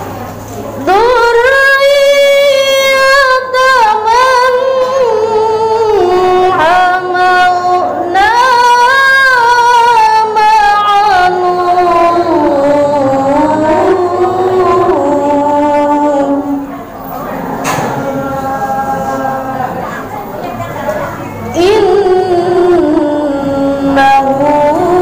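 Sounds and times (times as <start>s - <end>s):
woman chanting into a microphone: 0.7s - 25.0s.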